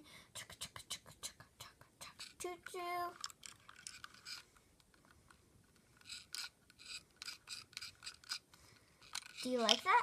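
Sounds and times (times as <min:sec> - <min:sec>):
plastic toy scraping: 0:03.1 - 0:05.0, 0:05.7 - 0:10.0.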